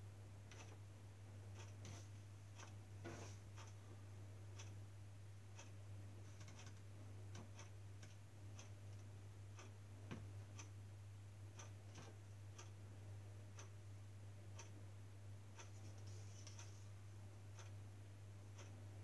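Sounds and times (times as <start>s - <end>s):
steady low hum: 0.0s - 19.0s
clock ticking faintly: 0.5s - 0.8s, 1.5s - 4.8s, 5.4s - 10.8s, 11.4s - 19.0s
soft irregular clicks: 0.5s - 0.8s, 1.5s - 3.8s, 4.6s - 4.8s, 5.6s - 10.8s, 11.5s - 12.8s, 13.5s - 13.8s, 14.6s - 14.8s, 15.6s - 17.8s, 18.5s - 18.8s.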